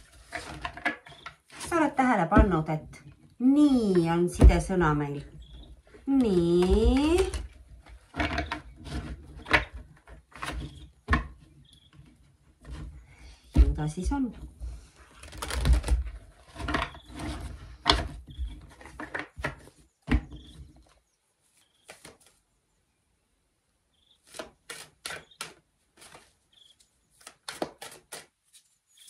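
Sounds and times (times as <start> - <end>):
cards being shuffled: 21.5 - 22.4, 24.2 - 29.0.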